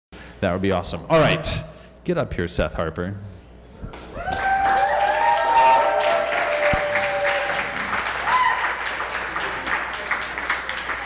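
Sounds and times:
crowd cheering: 4.0s - 11.0s
long held whoops: 4.1s - 8.9s
audience applauding: 4.2s - 11.0s.

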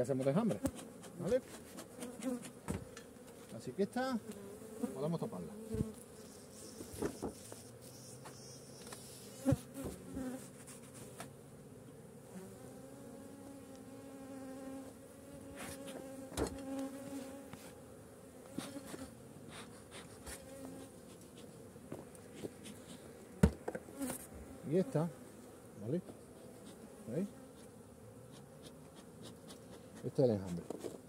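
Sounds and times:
honeybees buzzing: 0.0s - 31.0s
hive covers knocking: 0.2s - 2.9s.

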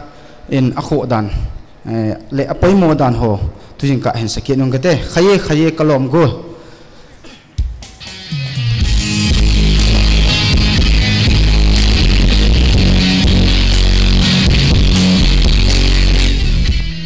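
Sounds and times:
crashing cymbals: 7.9s - 16.5s
electric guitar: 7.9s - 17.0s
heavy bass: 8.1s - 17.0s.

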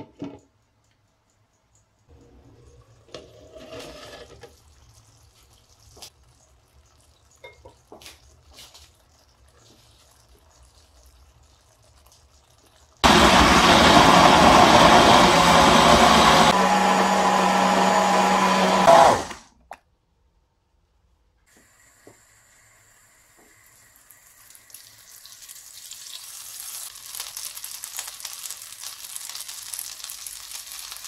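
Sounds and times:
electric blender running: 13.0s - 19.5s.

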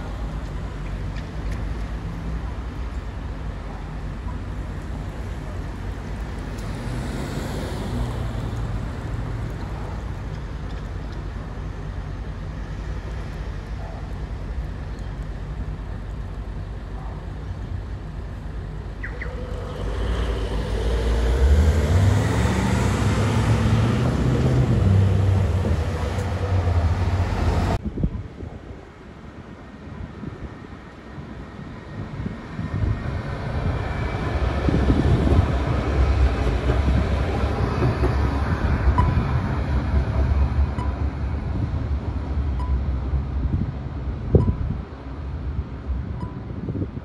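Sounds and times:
street traffic: 0.0s - 47.0s
bus accelerating past: 4.8s - 13.6s, 18.8s - 27.8s.

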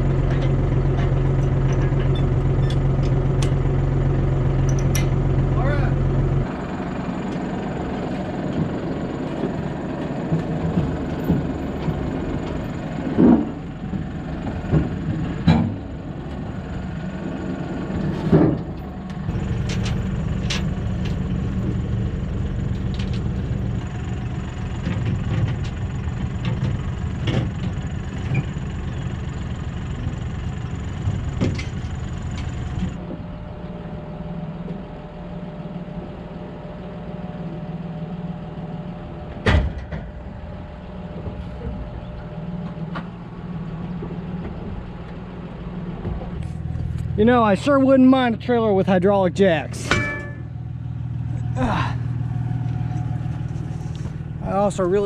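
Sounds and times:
engine idling with whine: 0.0s - 55.0s
tractor diesel engine running: 0.0s - 55.0s
metallic knocks: 49.8s - 50.5s.

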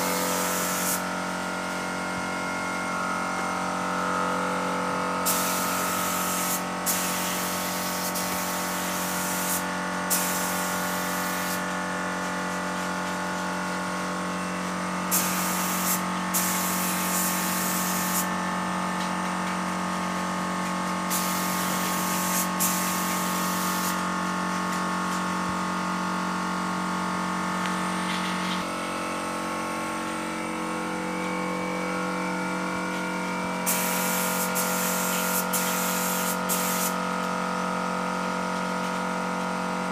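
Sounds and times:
spray gun hissing air bursts: 0.0s - 2.0s, 5.2s - 14.0s, 15.0s - 18.6s, 20.8s - 24.5s, 33.5s - 37.1s
air compressor humming: 0.0s - 39.9s.

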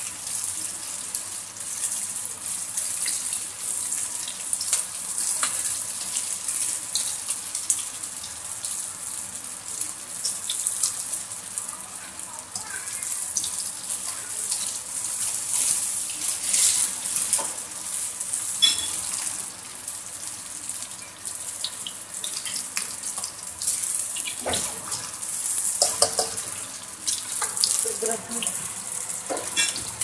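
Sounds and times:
meat sizzling in hot oil: 0.0s - 30.0s
spatula scraping and knocking wok: 25.7s - 26.6s.

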